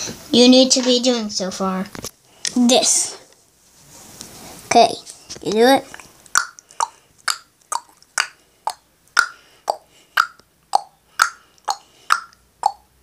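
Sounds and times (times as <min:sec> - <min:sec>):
sharp alternating clicks: 0:06.2 - 0:13.0.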